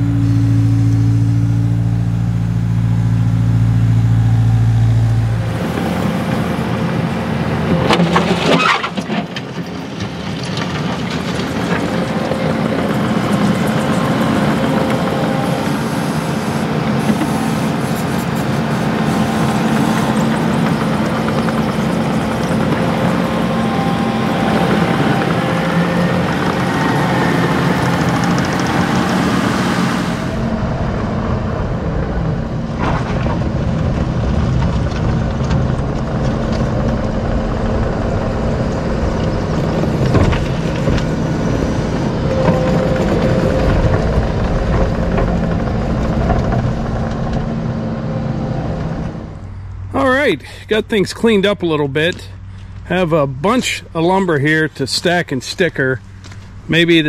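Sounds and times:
diesel engine running: 0:00.0 - 0:57.0
loader scraping sawdust: 0:04.4 - 0:30.6, 0:36.0 - 0:49.4.

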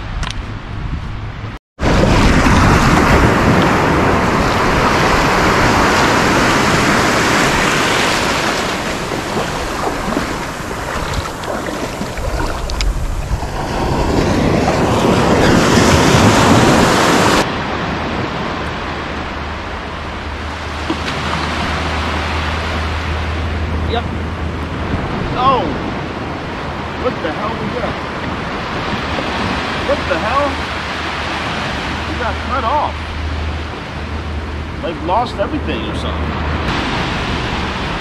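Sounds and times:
low wind rumble: 0:00.0 - 0:38.0
wind on microphone: 0:00.0 - 0:38.0
surf washing over sand: 0:01.8 - 0:38.0.

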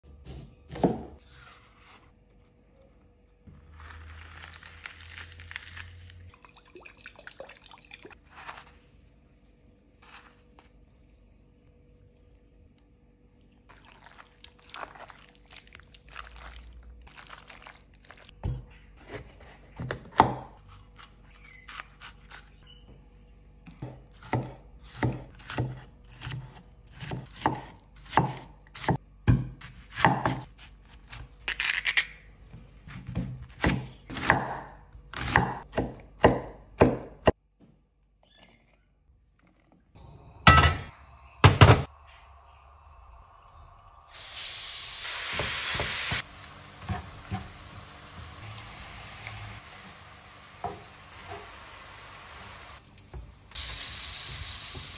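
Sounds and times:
knife chopping on wooden board: 0:00.2 - 0:01.2.

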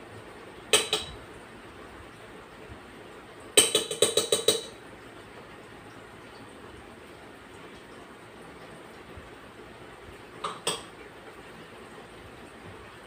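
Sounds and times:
utensil clinking on metal bowl: 0:00.7 - 0:01.2.

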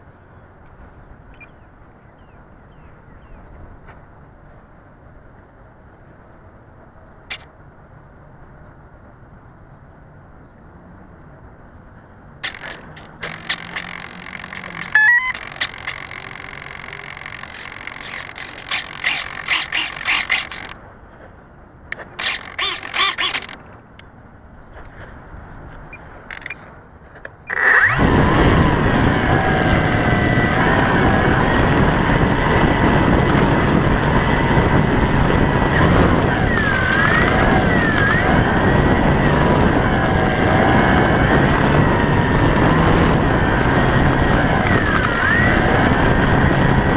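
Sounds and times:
clicks: 0:12.4 - 0:20.8
electric motor and propeller whine: 0:12.4 - 0:20.8, 0:21.9 - 0:23.6, 0:26.1 - 0:26.6, 0:27.5 - 0:46.9.

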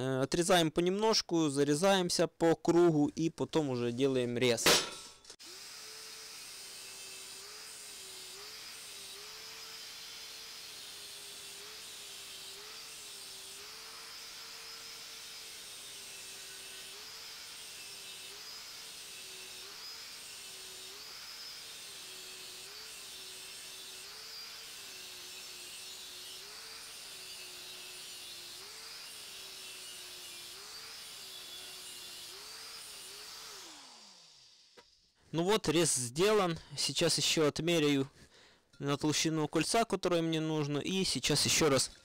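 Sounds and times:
angle grinder cutting steel pipe: 0:04.7 - 0:35.1.

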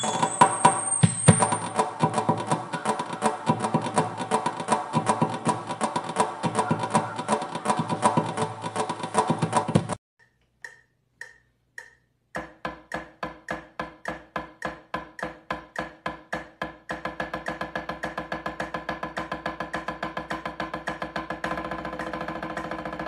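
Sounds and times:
drumsticks on practice pad: 0:00.0 - 0:17.6.

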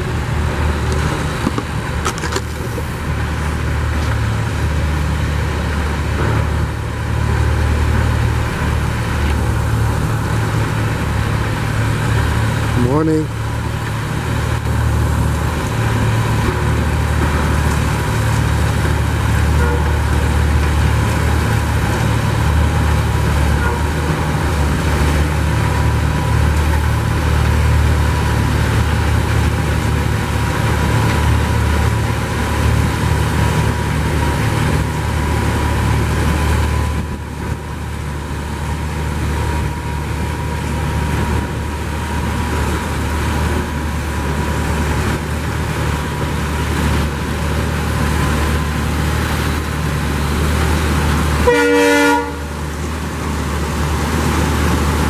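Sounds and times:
heavy diesel engines droning: 0:00.0 - 0:55.0.

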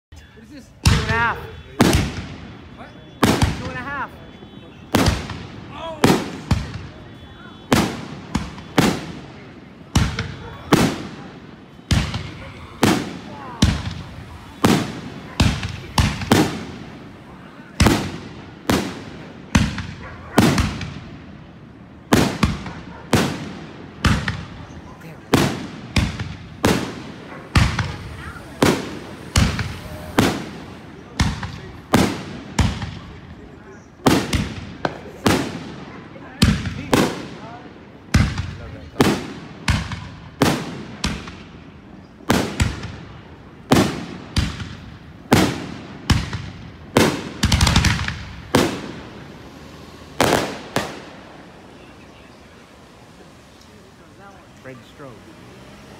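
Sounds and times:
fireworks booming: 0:00.5 - 0:55.9.

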